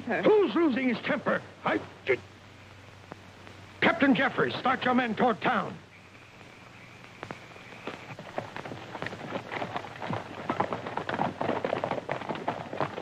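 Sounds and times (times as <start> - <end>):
horse hooves clopping: 5.9 - 13.0.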